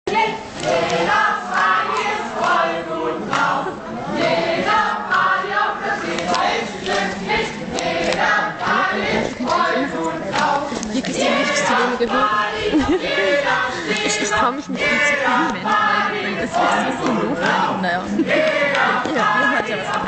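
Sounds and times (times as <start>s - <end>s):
crowd singing together: 0.1s - 20.0s.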